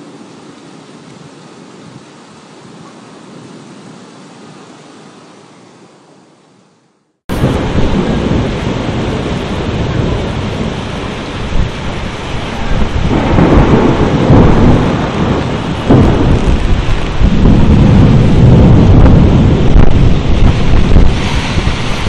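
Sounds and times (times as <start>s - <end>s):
heavy rain: 0.0s - 6.4s, 7.3s - 22.0s
rolling thunder: 7.3s - 22.0s.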